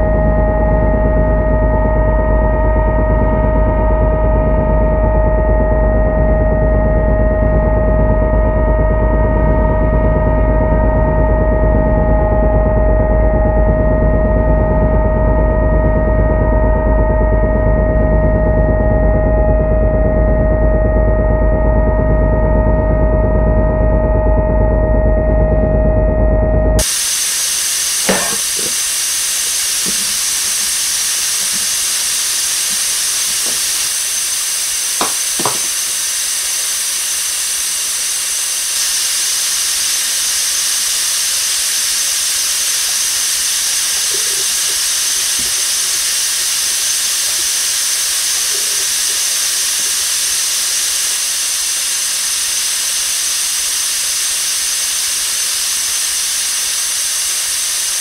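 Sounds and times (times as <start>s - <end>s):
loud steady hiss: 26.8s - 58.0s.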